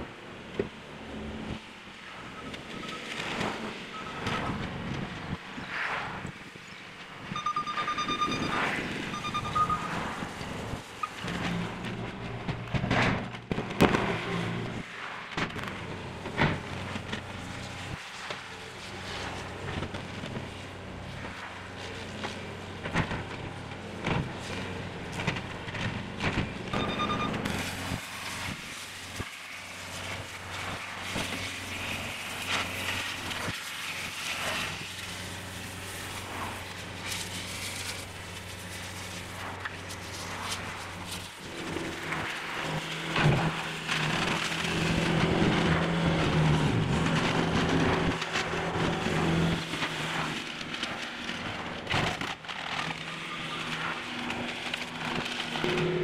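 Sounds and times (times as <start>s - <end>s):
reversing alarm beeps: 3.9s - 4.2s, 7.3s - 11.2s, 26.7s - 27.5s
heavy machinery running: 6.2s - 56.0s.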